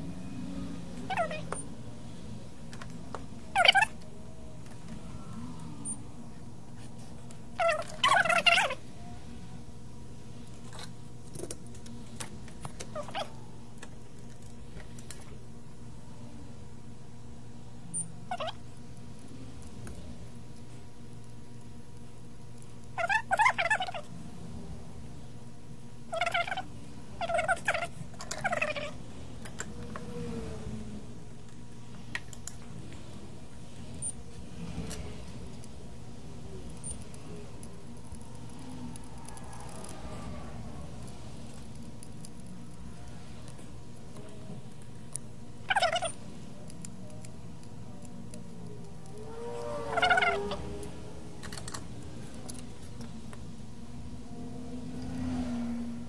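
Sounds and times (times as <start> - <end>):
electrical hum of equipment: 0.0 - 56.0
gliding squeak: 38.3 - 41.4, 49.0 - 52.2.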